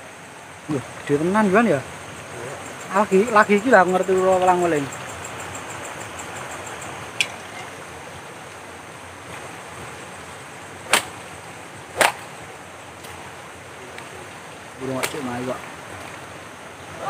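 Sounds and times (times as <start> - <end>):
steady hiss: 0.0 - 17.0
loud sharp cracks: 10.8 - 11.2, 11.9 - 12.3, 14.9 - 15.4.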